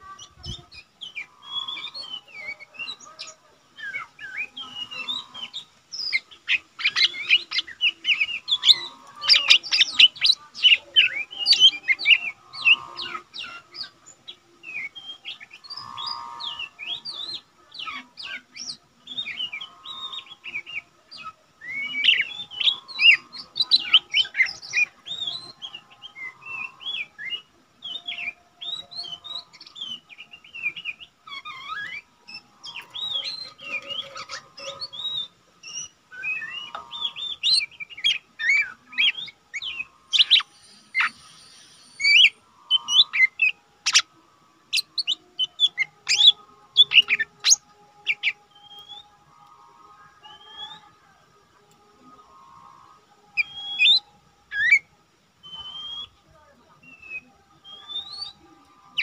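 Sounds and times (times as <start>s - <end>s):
bird chirps and whistles: 34.8s - 44.1s, 53.4s - 56.2s, 56.9s - 58.4s.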